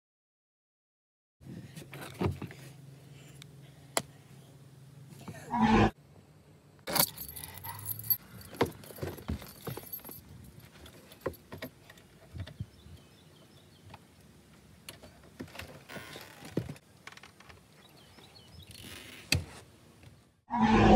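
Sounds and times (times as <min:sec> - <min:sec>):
keys jangling: 0:06.9 - 0:11.5.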